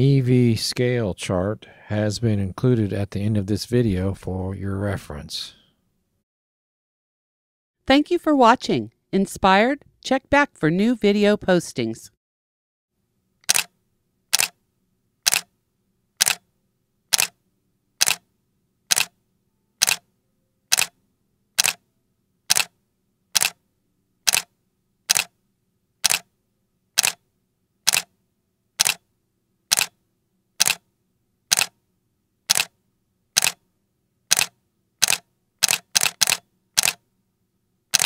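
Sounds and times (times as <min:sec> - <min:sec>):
camera shutter clicks: 0:13.4 - 0:13.7, 0:14.3 - 0:14.6, 0:15.3 - 0:15.5, 0:16.2 - 0:16.4, 0:17.1 - 0:17.4, 0:18.0 - 0:18.2, 0:18.9 - 0:19.2, 0:19.8 - 0:20.0, 0:20.7 - 0:21.0, 0:21.6 - 0:21.8, 0:22.5 - 0:22.7, 0:23.4 - 0:23.6, 0:24.3 - 0:24.5, 0:25.1 - 0:25.3, 0:26.0 - 0:26.3, 0:27.0 - 0:27.2, 0:27.9 - 0:28.1, 0:28.8 - 0:29.0, 0:29.7 - 0:30.0, 0:30.6 - 0:30.8, 0:31.5 - 0:31.8, 0:32.5 - 0:32.7, 0:33.4 - 0:33.6, 0:34.3 - 0:37.0.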